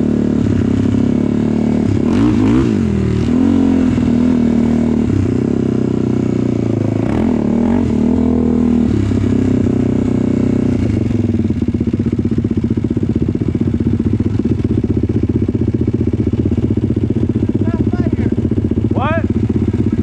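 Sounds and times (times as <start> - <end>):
atv engine running: 0.0 - 20.0.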